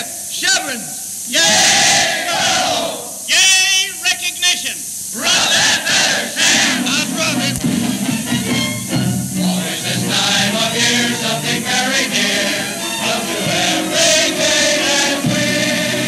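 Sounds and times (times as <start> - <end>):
recording hiss: 0.0 - 16.0
chorus singing: 1.3 - 3.2, 5.1 - 16.0.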